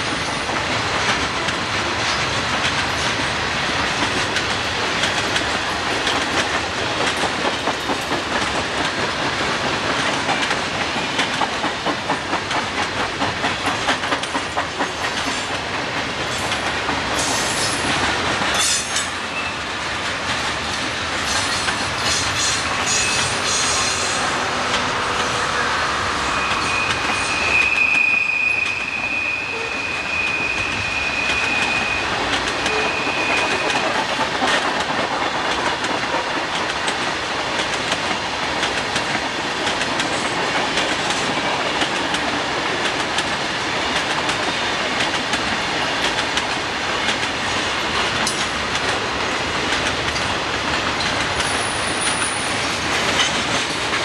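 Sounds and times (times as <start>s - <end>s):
train wheels rumbling on rails: 0.0s - 54.0s
high steady squeal: 25.4s - 33.6s.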